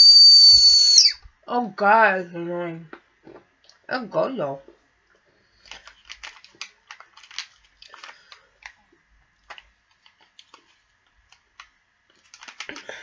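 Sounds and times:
plastic packaging crinkling: 5.5 - 13.0.

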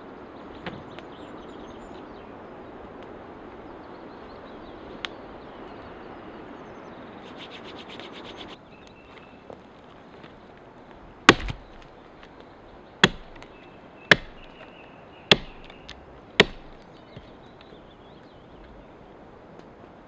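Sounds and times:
axe chopping branches: 11.2 - 12.3, 13.0 - 14.7, 15.3 - 17.3.

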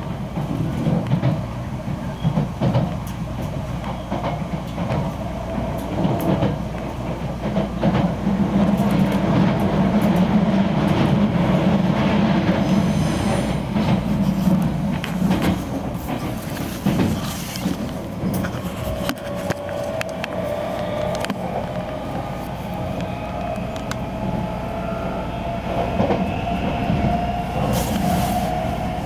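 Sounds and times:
train wheels rumbling on rail: 0.0 - 29.0
clicks from rail joints: 0.3 - 11.3, 13.7 - 24.1.

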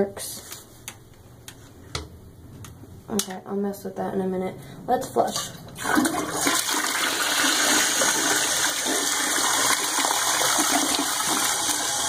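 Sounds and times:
toilet flushing: 5.4 - 12.0.

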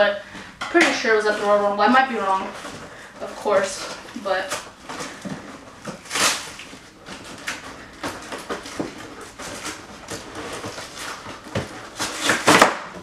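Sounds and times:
cardboard and tape ripping: 1.2 - 13.0.

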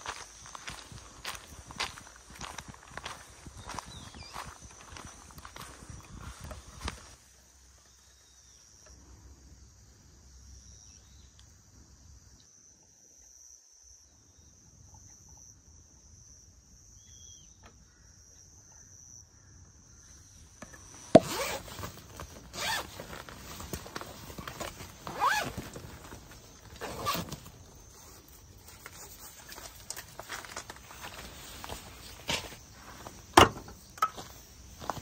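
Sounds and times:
insects trilling: 0.0 - 35.0.

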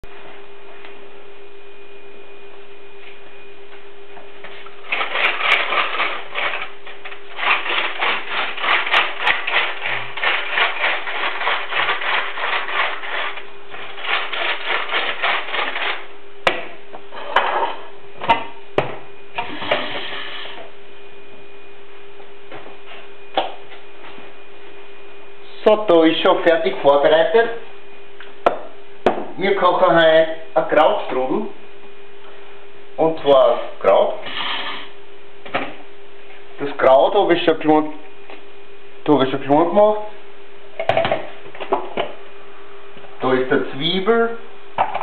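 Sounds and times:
steady low hum: 0.0 - 45.0.

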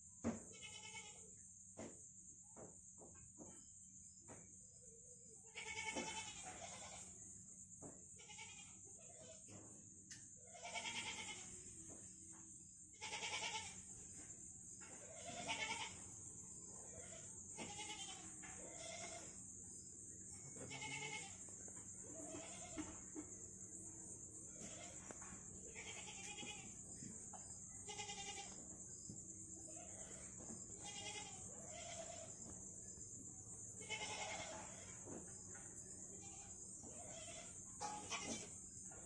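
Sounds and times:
steady high-pitched hiss: 0.0 - 39.0
goats bleating: 20.6 - 21.4.

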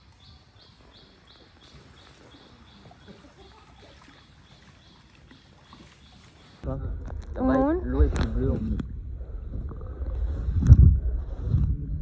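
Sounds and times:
low rumble: 6.6 - 12.0.

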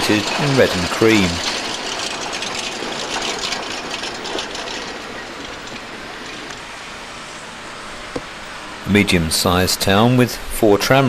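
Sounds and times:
clicks over rail joints: 0.0 - 6.8
tram wheels rumbling on rail: 0.0 - 11.0.

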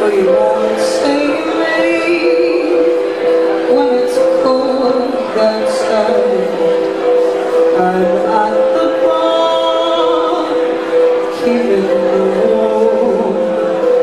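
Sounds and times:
piano held notes: 0.0 - 14.0
woman singing into microphone: 0.0 - 14.0.

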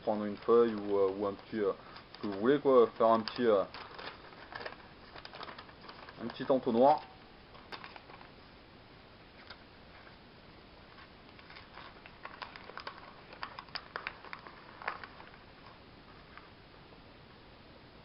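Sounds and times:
paper crinkling: 0.0 - 8.4, 10.8 - 16.6.

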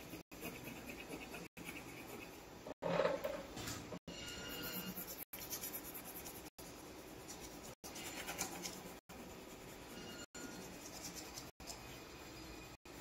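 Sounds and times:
pencil scratching on paper: 0.0 - 2.4, 4.5 - 11.6.

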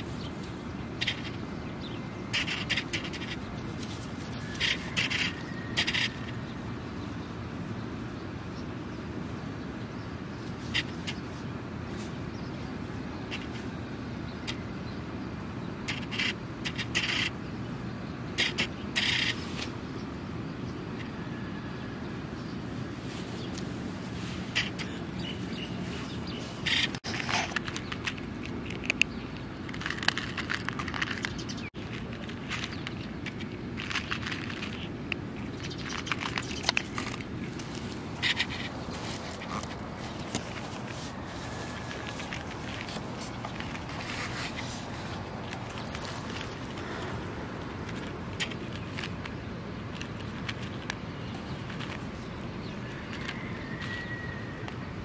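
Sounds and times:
distant traffic rumble: 0.0 - 55.0
cat crunching dry kibble: 27.0 - 53.4
hand rubbing cat fur: 37.6 - 47.2.

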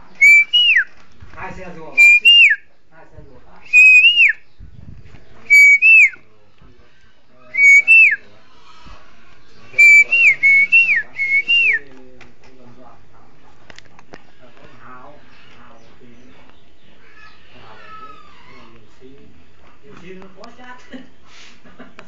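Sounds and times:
high whistled call: 0.2 - 0.9, 1.9 - 2.7, 3.6 - 4.6, 5.4 - 6.2, 7.5 - 8.3, 9.8 - 11.9.

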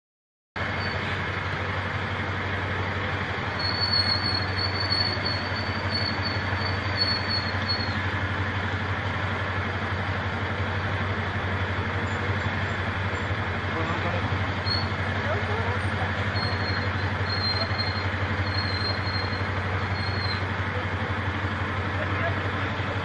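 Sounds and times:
road noise: 0.6 - 23.0
vehicle engines rumbling: 0.6 - 23.0.

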